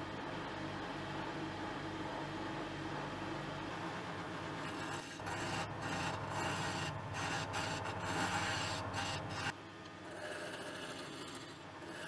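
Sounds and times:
wood lathe motor hum: 0:04.4 - 0:12.0
chisel scraping spinning wood: 0:04.6 - 0:12.0.

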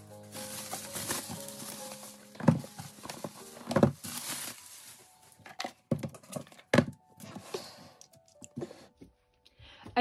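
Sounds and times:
bubble wrap rustling: 0:00.0 - 0:06.7.

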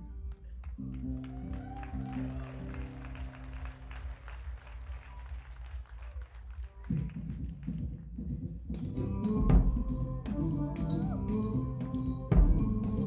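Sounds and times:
audience applauding: 0:00.2 - 0:08.0.

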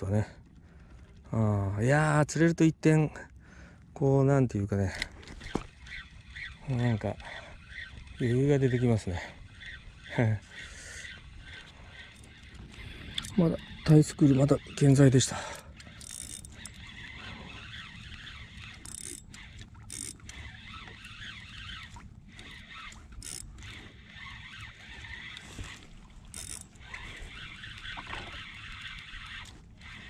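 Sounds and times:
fishing reel winding: 0:04.8 - 0:30.0
small clicks and rubs: 0:05.0 - 0:06.6.

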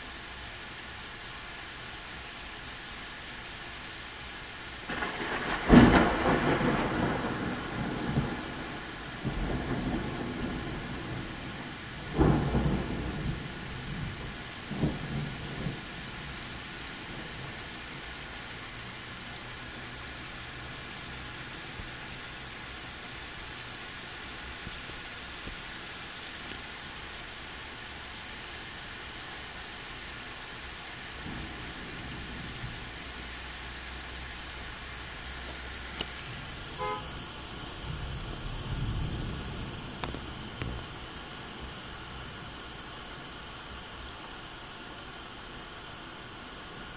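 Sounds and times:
heavy rain hissing: 0:00.0 - 0:46.9
loud thunderclap: 0:04.9 - 0:15.8, 0:37.8 - 0:41.0
thunder rumbling: 0:04.9 - 0:17.8, 0:31.1 - 0:33.2, 0:35.8 - 0:42.1.

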